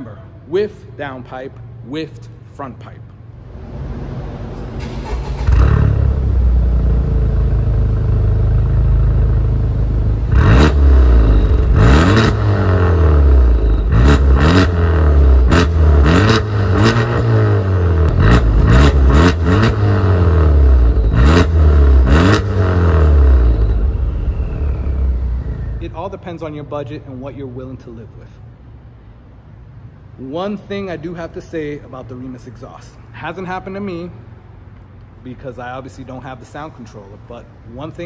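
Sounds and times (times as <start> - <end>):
car engine revving: 3.3 - 26.0.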